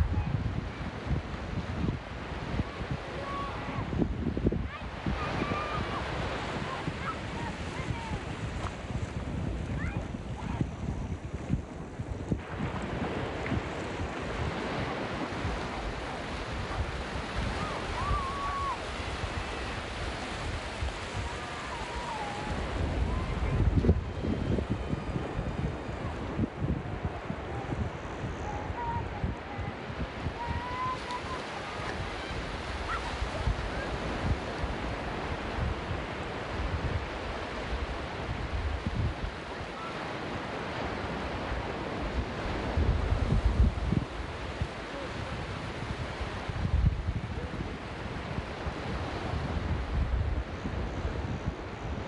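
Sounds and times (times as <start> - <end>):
waves breaking on sandy beach: 0.0 - 52.0
wind gusting on microphone: 0.0 - 52.0.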